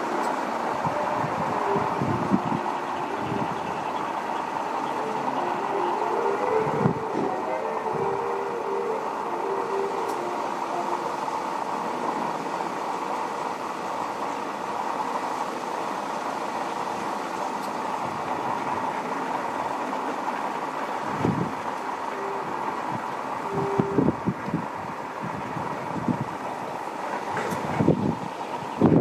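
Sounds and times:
wind buffeting microphone: 0.0 - 12.5, 20.9 - 21.7, 22.4 - 29.0
distant jet engine drone: 0.0 - 29.0.

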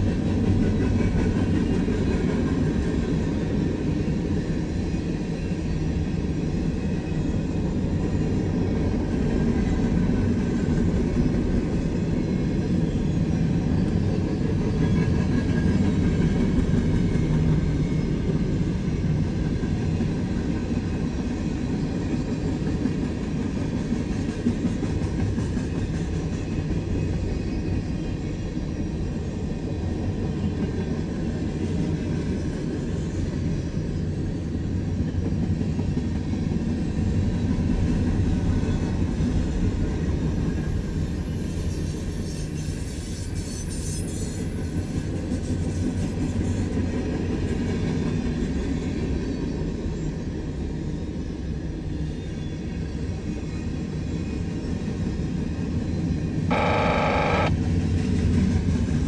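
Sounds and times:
high-pitched squeal: 56.5 - 57.5.

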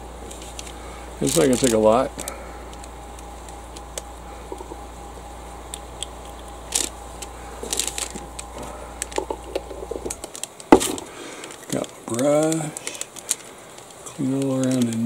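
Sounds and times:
steady low hum: 0.0 - 15.0
clicks and taps of handled objects: 5.7 - 15.0.

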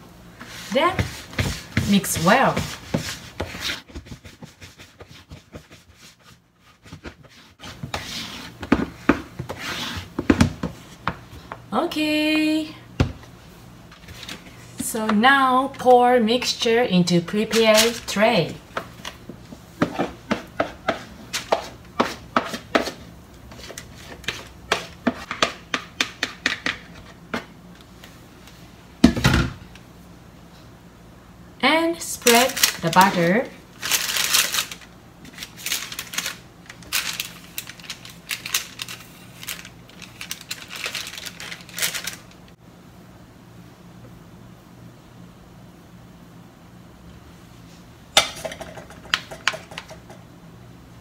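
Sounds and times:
whisk scraping plastic bowl: 0.4 - 10.1.

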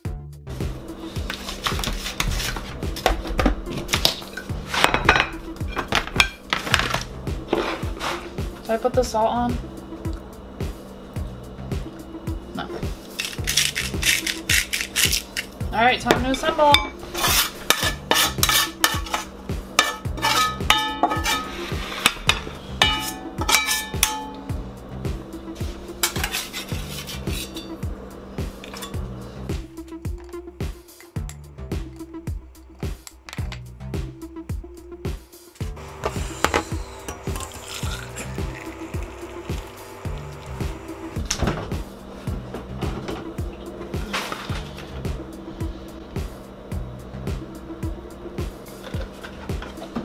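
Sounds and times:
background music: 0.0 - 50.0
plates and utensils clattering: 1.6 - 8.2, 16.3 - 24.4, 26.0 - 27.8, 28.6 - 29.0
metal spatula scraping frying pan: 16.8 - 24.3, 26.0 - 27.8.

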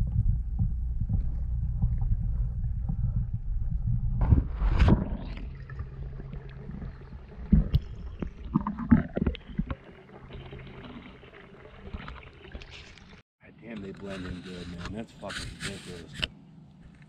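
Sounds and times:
steady low hum: 0.0 - 8.2
water sloshing and dripping: 0.0 - 13.2.

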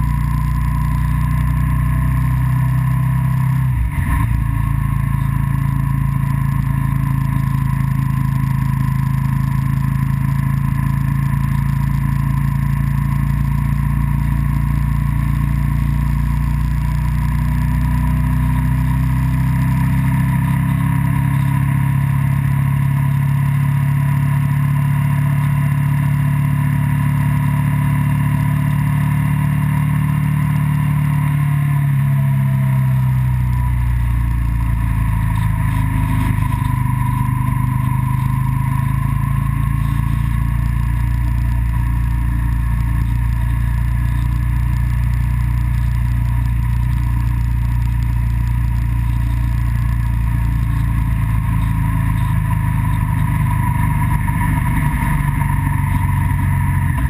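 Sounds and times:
wind and road noise: 0.0 - 11.4, 30.6 - 57.0
vehicle engine running: 0.0 - 57.0.

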